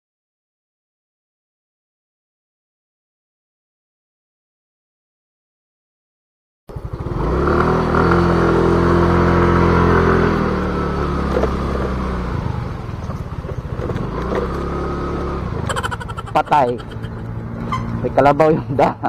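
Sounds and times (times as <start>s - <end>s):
scooter engine accelerating: 6.7s - 18.4s.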